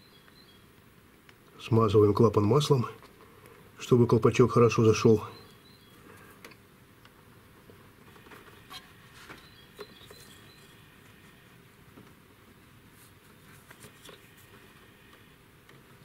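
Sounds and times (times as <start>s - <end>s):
low steady hiss: 0.0s - 16.0s
faint clicks and rustles: 6.0s - 16.0s.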